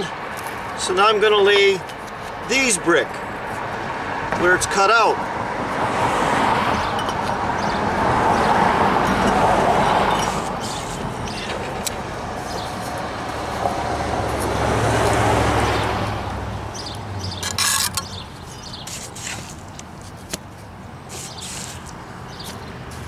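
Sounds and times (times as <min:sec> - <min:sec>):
road traffic passing: 0:00.0 - 0:23.0.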